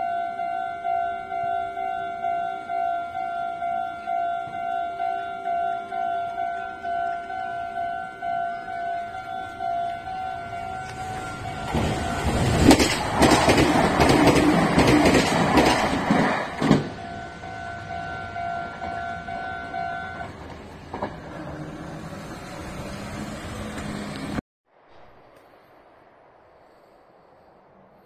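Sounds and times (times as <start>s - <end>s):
crossing warning bell dinging: 0.0s - 21.2s
train rumbling past: 0.0s - 24.4s
wheels clicking over rail joints: 8.5s - 21.9s.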